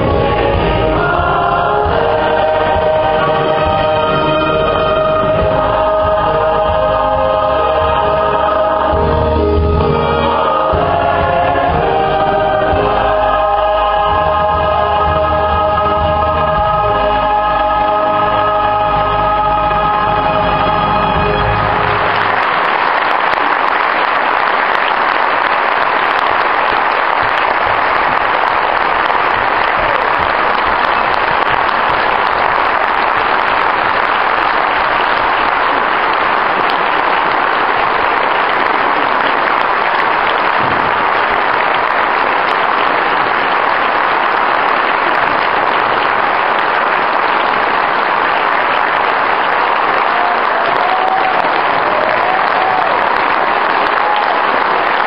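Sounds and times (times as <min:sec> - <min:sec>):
choir singing: 0:00.0 - 0:22.4
large audience applauding: 0:00.0 - 0:55.0.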